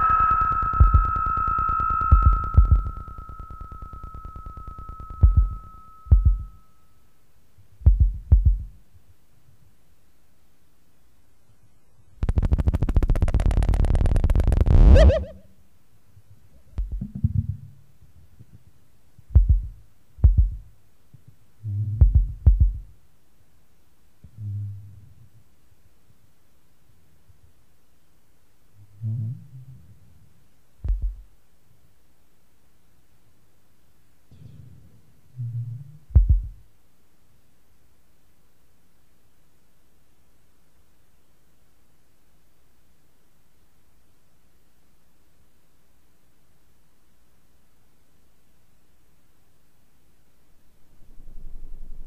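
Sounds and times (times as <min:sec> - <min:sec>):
fast even electronic pulsing: 0:00.0 - 0:06.6, 0:12.2 - 0:15.4
steady high electronic tone: 0:00.0 - 0:06.8
low hum: 0:00.0 - 0:07.0, 0:50.6 - 0:52.0
deep low thuds with clicks: 0:03.9 - 0:06.6, 0:07.8 - 0:08.8, 0:16.8 - 0:17.6, 0:19.3 - 0:20.7, 0:21.8 - 0:22.9, 0:30.8 - 0:31.3, 0:36.1 - 0:36.6.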